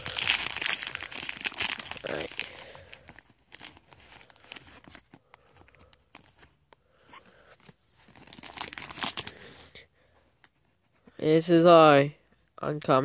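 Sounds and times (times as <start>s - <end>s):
foil wrapper crinkling: 0.0s - 5.5s, 8.0s - 9.4s.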